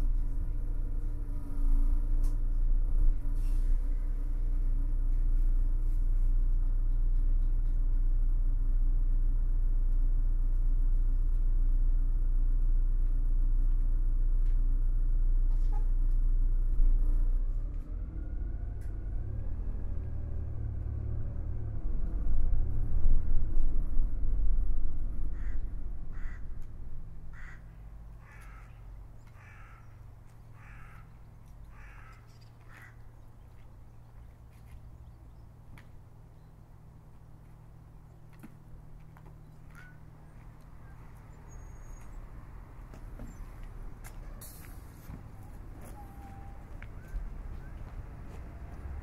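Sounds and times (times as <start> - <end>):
deep engine rumble: 0.0 - 49.0
large vehicle engine idling: 0.0 - 49.0
bird calling: 39.4 - 42.2, 45.4 - 47.9.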